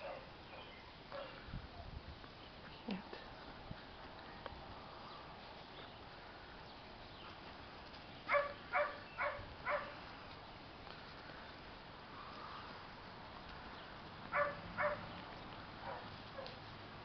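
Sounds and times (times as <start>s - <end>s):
dog barking: 0.0s - 1.4s, 8.3s - 10.0s, 14.3s - 15.1s, 15.8s - 16.6s.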